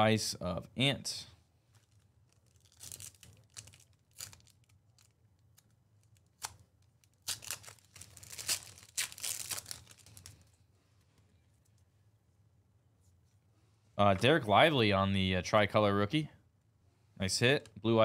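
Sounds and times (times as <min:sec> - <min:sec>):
card wrappers tearing and crinkling: 0:01.8 - 0:10.4.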